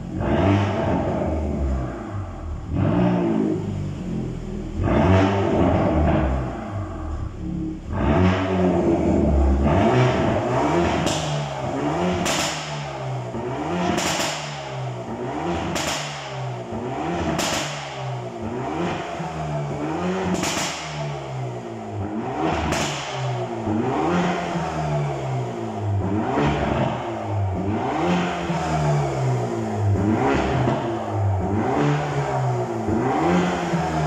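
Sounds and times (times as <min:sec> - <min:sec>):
car engine revving: 0:00.0 - 0:34.0
exhaust pops: 0:10.1 - 0:14.8, 0:15.6 - 0:16.4, 0:17.2 - 0:18.0, 0:20.3 - 0:21.1, 0:22.5 - 0:23.5.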